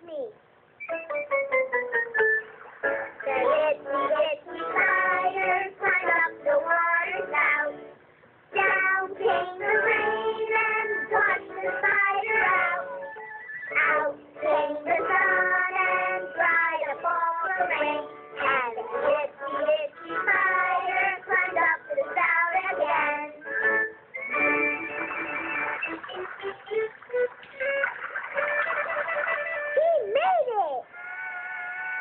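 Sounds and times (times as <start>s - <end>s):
child singing with music: 3.1s - 23.8s.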